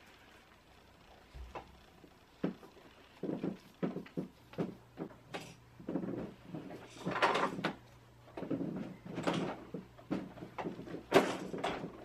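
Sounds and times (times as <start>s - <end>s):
plastic pipes knocking and clattering: 2.4s - 12.0s.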